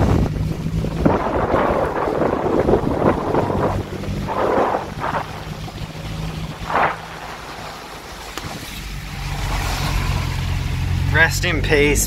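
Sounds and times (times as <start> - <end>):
wind rushing over microphone: 0.0 - 8.8
low engine hum: 0.0 - 12.0
tyres on wet road: 0.0 - 12.0.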